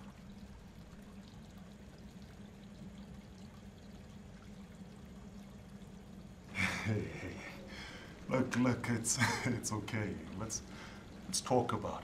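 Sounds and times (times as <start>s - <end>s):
steady hiss: 6.3s - 12.0s.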